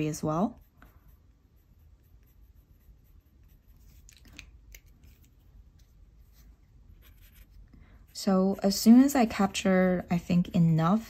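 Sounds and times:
pencil scratching on paper: 0.0s - 4.2s, 6.2s - 10.3s.

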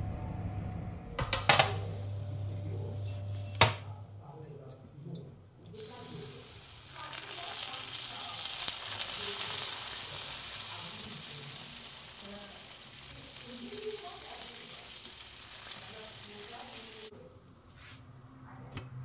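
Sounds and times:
sizzling hiss from hot buns: 5.6s - 18.0s.

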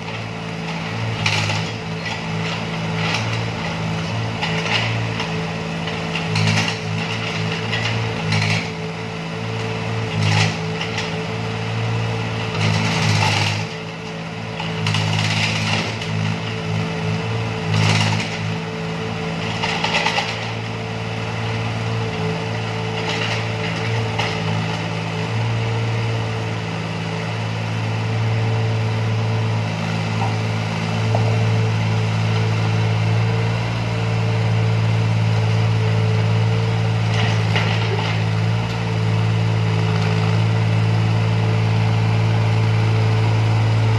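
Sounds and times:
harsh scraping in rubble: 0.0s - 8.9s, 12.5s - 21.4s, 36.6s - 39.0s
excavator engine and hydraulics: 0.0s - 43.9s.

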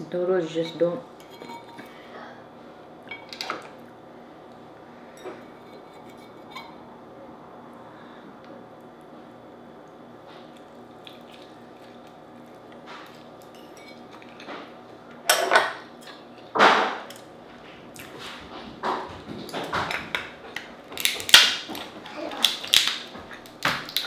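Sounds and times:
crab shell cracking: 20.9s - 24.0s.

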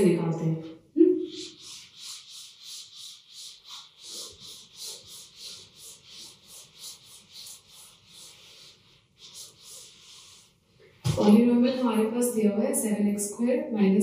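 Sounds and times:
eraser rubbing on whiteboard: 1.2s - 11.8s.

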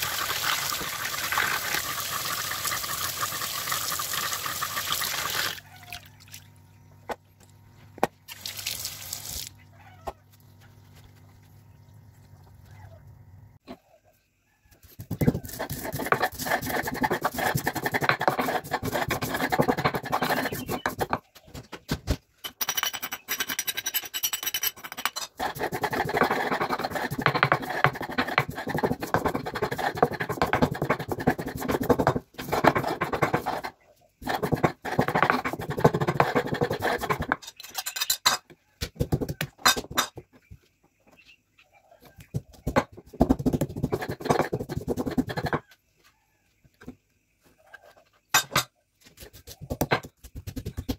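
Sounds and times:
stone pestle grinding seeds: 14.9s - 21.2s, 22.6s - 38.0s, 42.7s - 45.6s.

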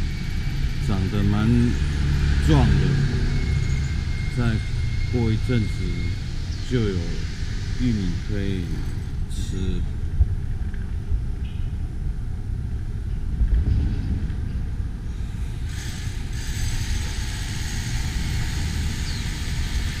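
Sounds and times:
vehicle passing with hiss: 0.0s - 8.8s
street traffic going by: 0.0s - 10.8s, 12.4s - 20.0s.

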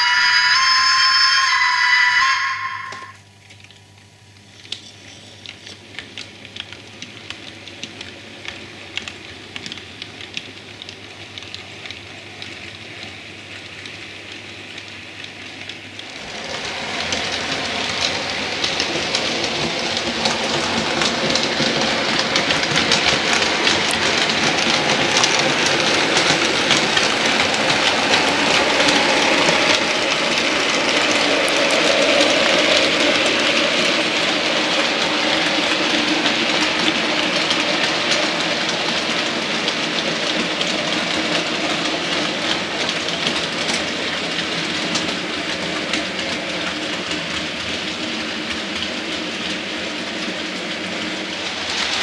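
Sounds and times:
model train wheels clicking: 4.4s - 52.0s.

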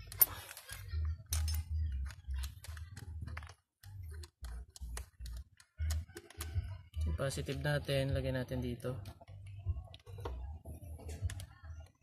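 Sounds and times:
small clicks and metallic taps: 0.1s - 7.6s.

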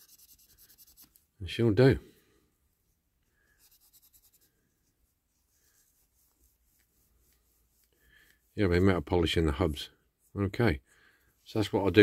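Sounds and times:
wire wool rubbing on metal: 0.0s - 1.2s, 3.6s - 9.2s.

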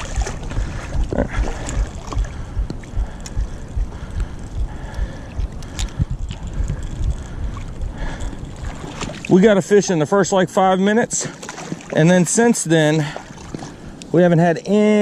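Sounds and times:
river water washing: 0.0s - 4.3s, 5.2s - 13.9s
wind buffeting microphone: 0.0s - 10.4s.

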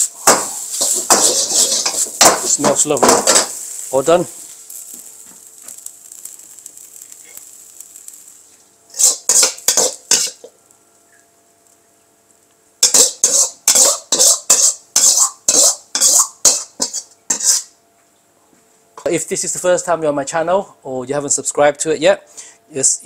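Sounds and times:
metal ladle scraping a wok: 0.7s - 2.6s, 8.9s - 10.4s, 12.8s - 17.7s.

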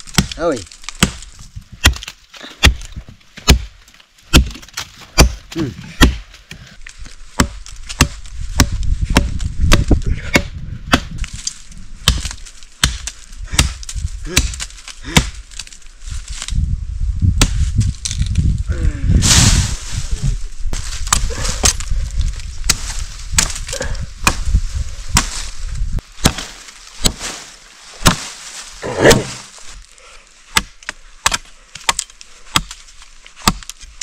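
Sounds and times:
blade chopping wood: 0.0s - 6.6s, 7.4s - 15.7s, 22.6s - 24.5s, 25.1s - 25.5s, 26.2s - 28.4s, 30.5s - 34.0s.

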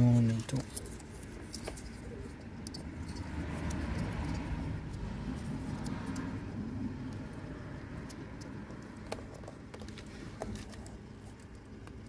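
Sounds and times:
rustling and rubbing handling noise: 0.0s - 4.4s, 8.5s - 12.0s.

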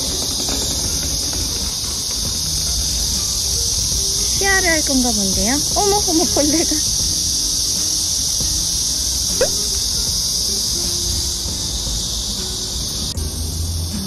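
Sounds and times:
cicadas buzzing: 0.0s - 14.0s
short rising squeak: 8.6s - 11.1s.

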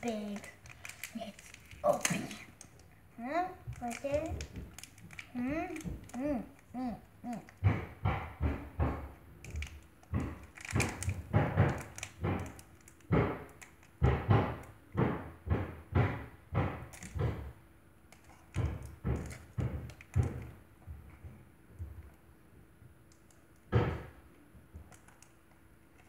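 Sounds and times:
plastic bag rustling and thudding: 9.6s - 13.4s.

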